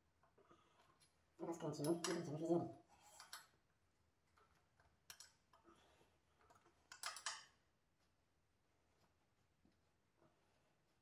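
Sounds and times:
metallic clicks of tools: 5.1s - 5.4s, 6.5s - 7.6s.

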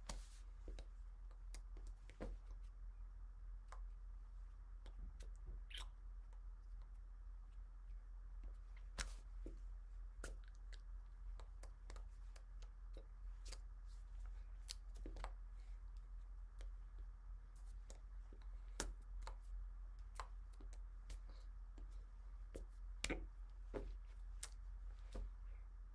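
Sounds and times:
steady low hum: 0.0s - 25.9s
hand and lip clicks: 24.4s - 25.2s.

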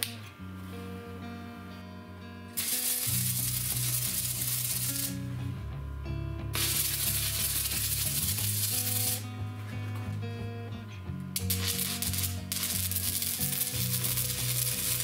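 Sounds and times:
welding arc crackling and sizzling: 2.6s - 5.5s, 6.5s - 9.4s, 11.4s - 15.0s.

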